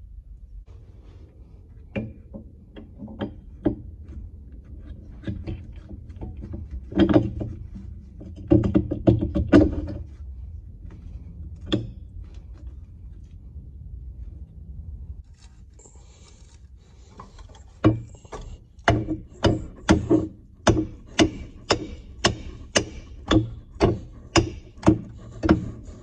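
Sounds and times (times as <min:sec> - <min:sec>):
metal clanking and knocking: 0:01.9 - 0:10.4, 0:11.5 - 0:12.6, 0:17.2 - 0:26.0.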